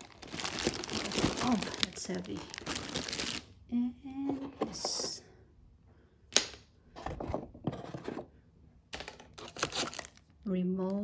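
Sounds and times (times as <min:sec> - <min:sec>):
packaging crinkling: 0:00.0 - 0:03.5, 0:09.0 - 0:10.3.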